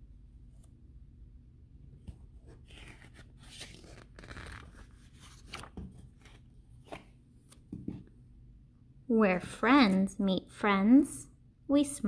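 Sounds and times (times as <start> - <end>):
book pages turning: 2.0 - 7.9.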